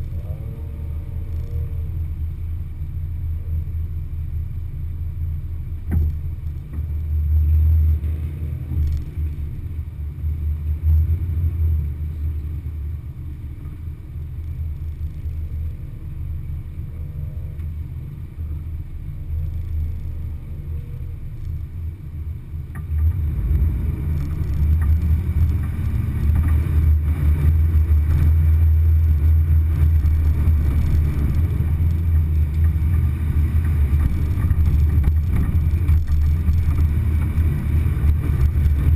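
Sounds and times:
off-road vehicle rumbling: 0.0s - 38.9s.

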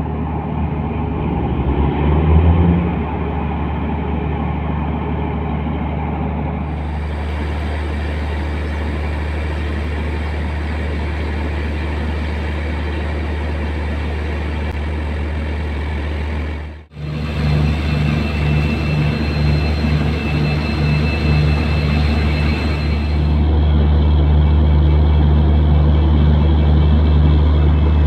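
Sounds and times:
diesel locomotive idling: 0.0s - 1.7s, 2.3s - 28.0s
electric locomotive drone: 0.0s - 28.0s
thin high whine: 16.9s - 23.7s.

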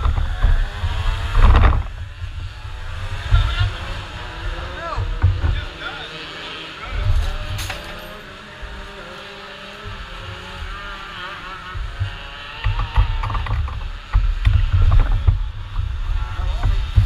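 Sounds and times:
wind buffeting camera microphone: 0.0s - 5.7s, 11.7s - 17.0s
sharp clicks and knocks: 1.3s - 2.0s, 11.7s - 17.0s.

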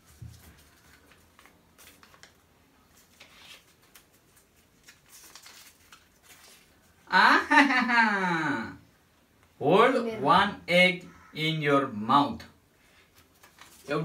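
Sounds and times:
paper crinkling: 0.0s - 7.0s, 13.0s - 14.0s.

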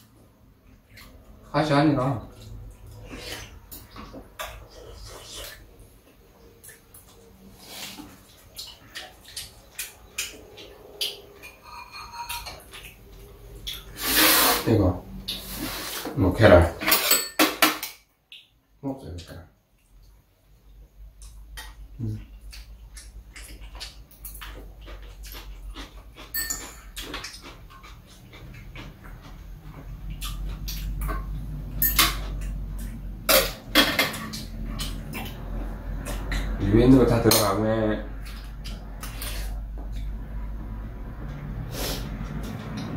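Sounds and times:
utensils clicking against bowls: 16.8s - 18.0s, 25.2s - 29.4s, 30.2s - 40.2s.

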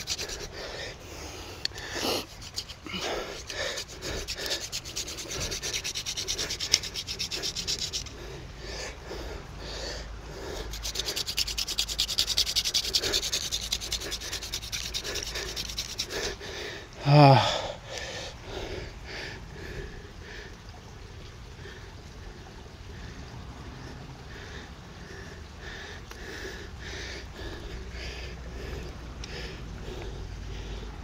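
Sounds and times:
hand drill spindle rubbing: 0.0s - 0.6s, 1.6s - 8.2s, 10.7s - 16.4s
heavy breathing: 0.0s - 11.2s, 13.8s - 20.7s, 22.8s - 31.0s
groan of effort: 17.0s - 17.8s.

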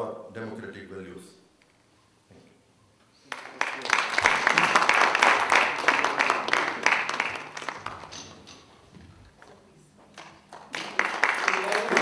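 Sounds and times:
audience applauding: 3.3s - 8.6s, 10.5s - 12.0s.

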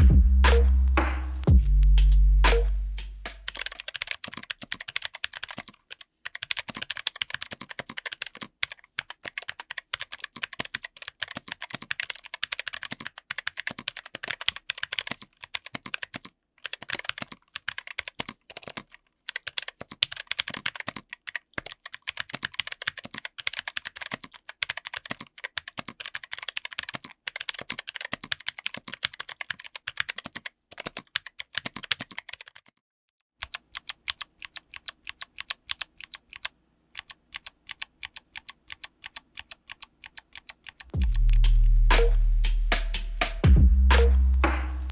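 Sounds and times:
fast clicky keyboard typing: 3.4s - 32.8s, 33.4s - 41.5s.

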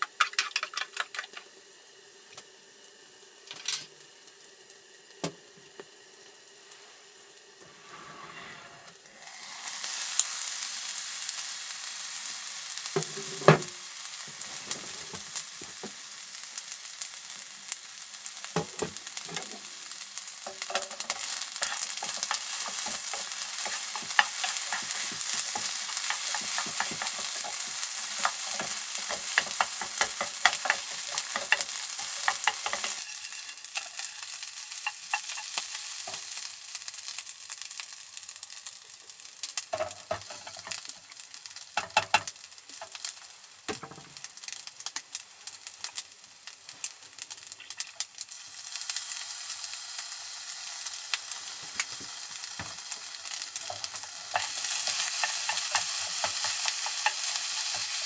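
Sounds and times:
rice sizzling in a pot: 0.0s - 58.0s
metal spoon scraping a pot: 20.6s - 34.1s.

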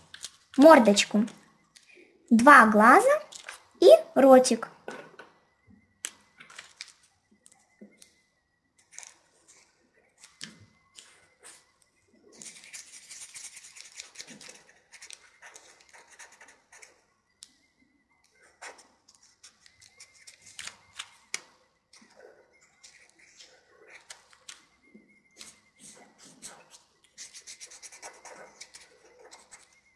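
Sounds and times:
marker scratching on paper: 12.4s - 17.0s, 18.4s - 20.7s, 25.4s - 29.8s.

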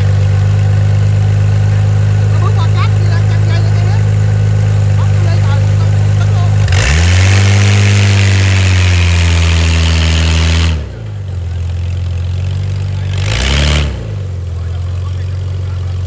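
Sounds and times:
off-road vehicle engine revving: 0.0s - 16.0s.

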